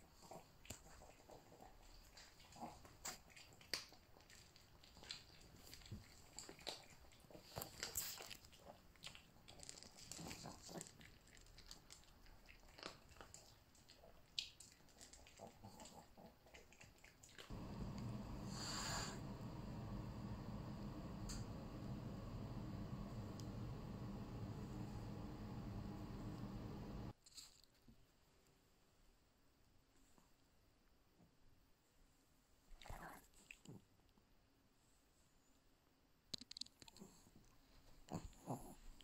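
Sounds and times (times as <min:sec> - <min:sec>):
dog crunching dry kibble: 0:00.8 - 0:17.5.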